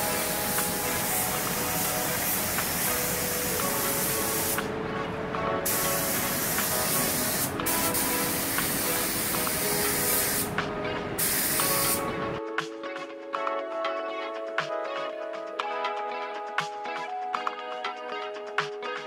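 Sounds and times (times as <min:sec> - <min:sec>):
paint spray gun hissing: 0:00.0 - 0:04.7, 0:05.6 - 0:10.6, 0:11.2 - 0:12.2.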